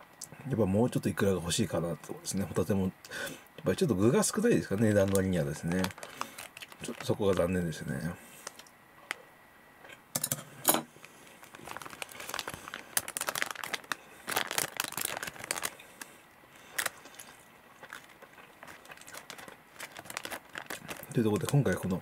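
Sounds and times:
plastic wrapper crinkling: 3.8 - 9.2, 11.0 - 22.0.

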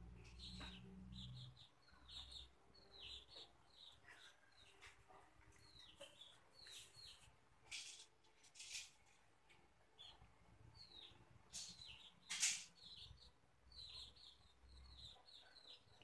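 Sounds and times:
faint bird chirps: 10.0 - 16.0.

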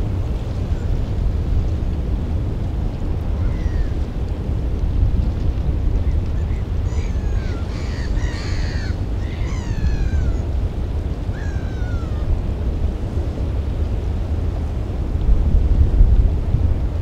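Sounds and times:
wind rumble on microphone: 0.0 - 17.0
gulls calling: 3.2 - 4.1, 6.0 - 12.5.

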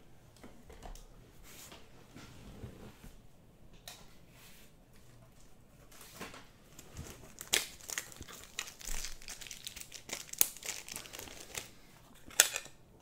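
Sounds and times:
thin plastic crinkling: 6.7 - 12.8.

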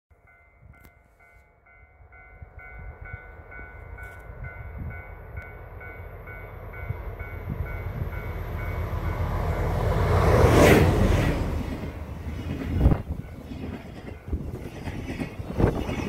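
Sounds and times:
railway warning bell ringing: 0.1 - 10.7
freight train rumble: 0.2 - 16.0.

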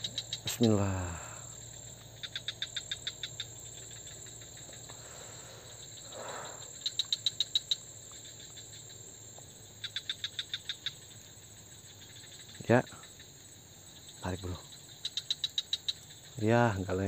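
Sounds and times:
faint high drone: 0.0 - 1.6
insects chirping: 0.0 - 17.0.

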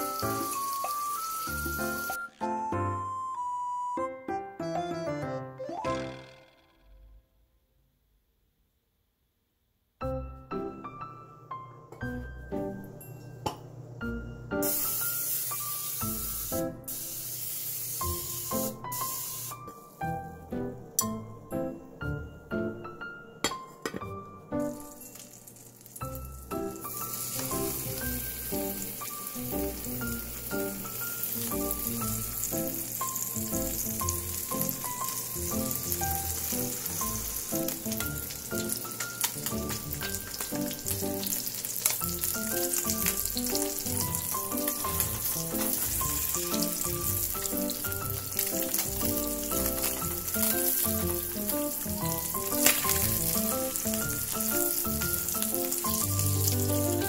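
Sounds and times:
meat sizzling in oil: 0.0 - 2.3, 14.6 - 19.7, 24.7 - 57.0
light background melody: 0.0 - 6.8, 10.0 - 57.0.

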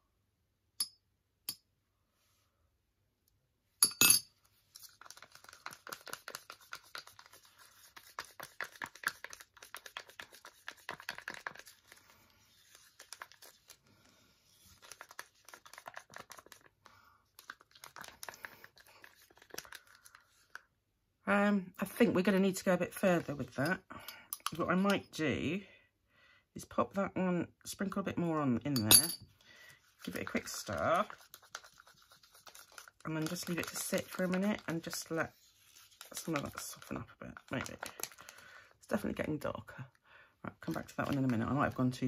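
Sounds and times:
metal spoon clinking on ceramic cup: 3.8 - 4.3, 28.8 - 29.2
wooden stick scraping plastic cup: 4.7 - 13.8, 14.4 - 20.6, 29.8 - 38.4, 40.6 - 42.0.

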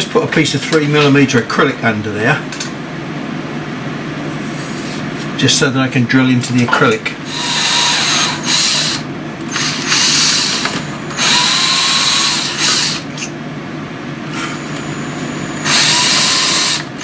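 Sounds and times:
drill motor running: 7.2 - 13.2, 14.4 - 17.0
drill bit cutting metal: 7.3 - 13.1, 15.5 - 17.0.

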